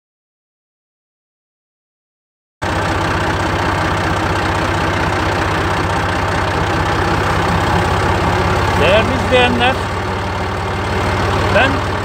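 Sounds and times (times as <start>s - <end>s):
tractor engine running: 2.6s - 12.0s.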